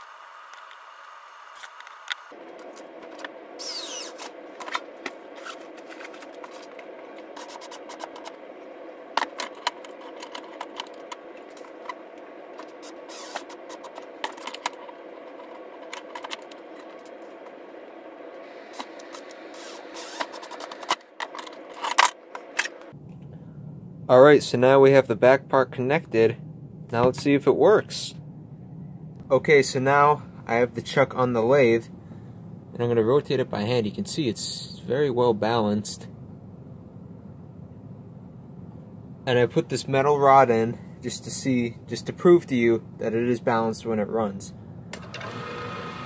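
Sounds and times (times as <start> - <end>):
steady hum: 0.0 - 46.0
clicks and scrapes of handled parts: 9.2 - 12.0, 12.6 - 17.4, 18.8 - 22.9.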